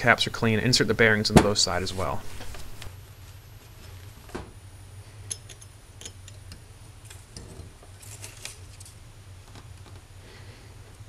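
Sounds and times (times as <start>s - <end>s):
steady low hum: 0.0s - 11.0s
metal parts clicking and tapping: 5.3s - 8.5s.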